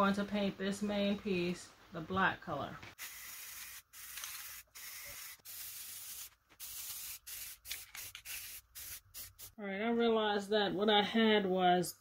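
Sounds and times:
aerosol spray can hissing: 3.0 - 9.6.

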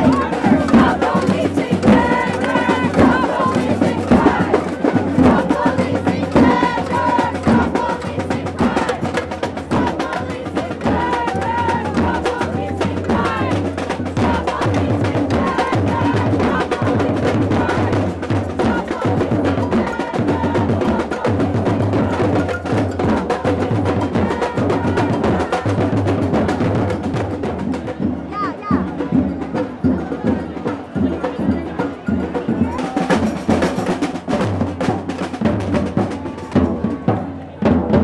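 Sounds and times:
voices calling out: 0.0 - 27.4
samba drum band: 0.0 - 38.0.

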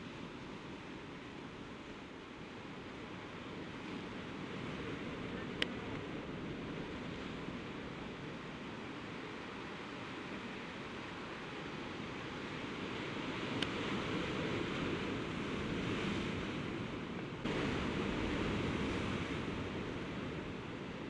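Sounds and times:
click: 5.6 - 6.0
surf washing against rocks: 17.5 - 21.0.

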